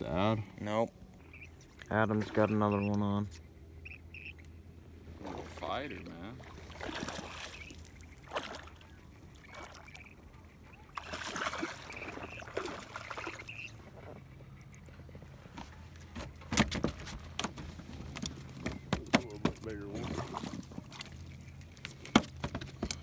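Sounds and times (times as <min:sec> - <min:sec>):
low steady hum: 0:00.0 - 0:23.0
fish splashing in water: 0:06.4 - 0:14.0.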